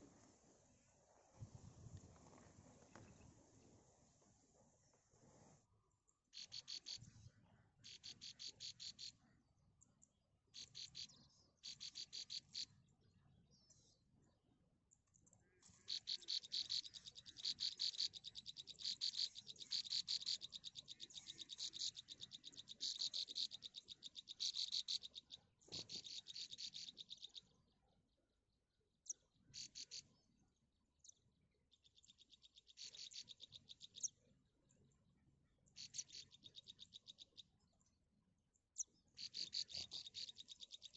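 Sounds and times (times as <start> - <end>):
nestling birds chirping: 15.7 - 27.5.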